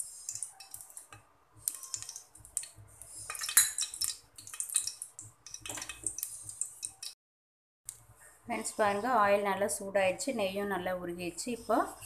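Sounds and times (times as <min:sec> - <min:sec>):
metal spoon scraping a pot: 0:03.0 - 0:04.8.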